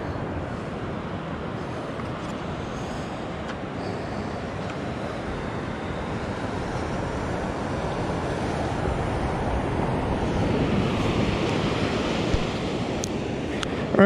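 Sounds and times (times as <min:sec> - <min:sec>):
wind buffeting microphone: 0:00.0 - 0:13.9
breaking surf: 0:01.7 - 0:14.0.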